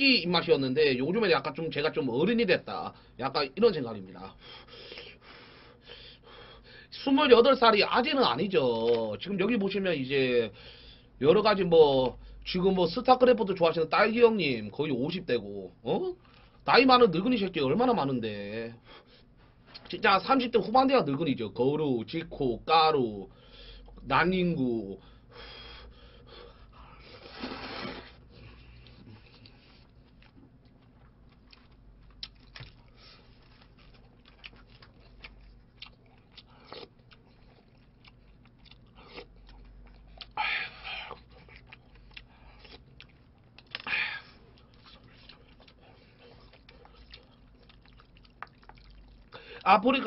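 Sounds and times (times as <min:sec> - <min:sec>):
person chewing food: 0:25.8 - 0:50.0
person slurping: 0:27.1 - 0:29.5.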